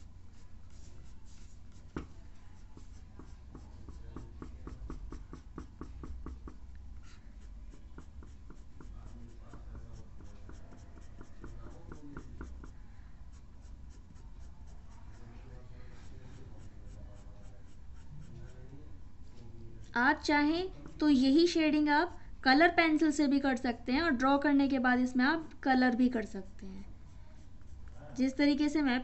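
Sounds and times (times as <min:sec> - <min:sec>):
pencil scratching on paper: 0:00.0 - 0:18.7.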